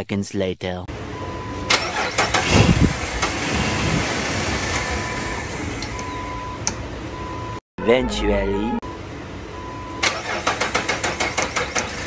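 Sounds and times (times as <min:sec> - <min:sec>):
engine cranking and starting: 0:01.6 - 0:06.1, 0:10.0 - 0:12.0.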